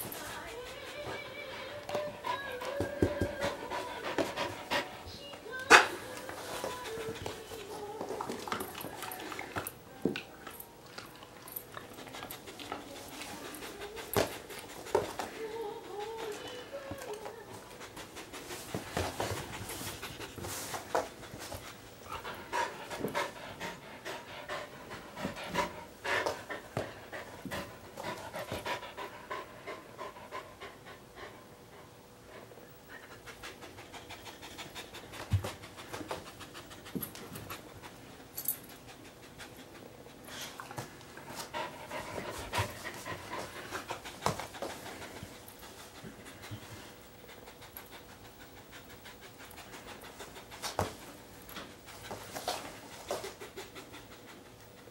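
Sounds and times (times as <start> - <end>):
dog sniffing: 0.0 - 9.8
bedding rustling: 5.2 - 23.5.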